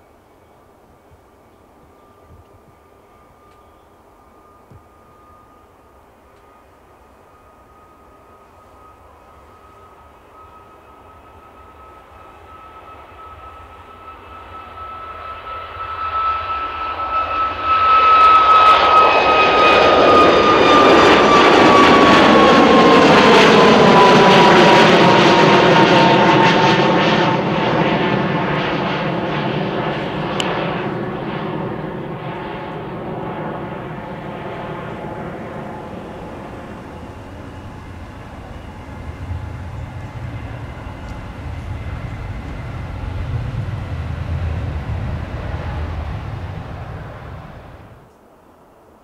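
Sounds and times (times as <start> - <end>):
jet plane taking off: 1.7 - 48.1
high fan whine: 29.8 - 48.6.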